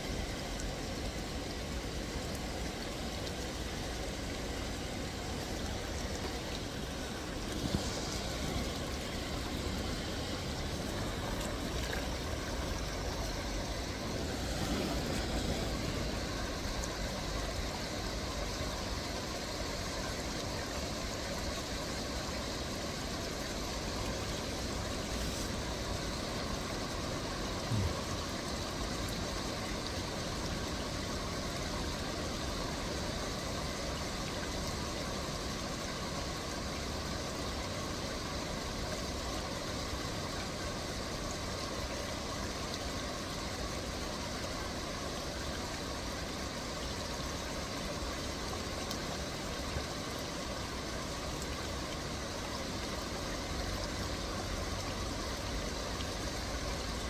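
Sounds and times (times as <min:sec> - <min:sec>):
low outdoor rumble: 0:00.0 - 0:22.5
faint hiss: 0:00.0 - 0:57.0.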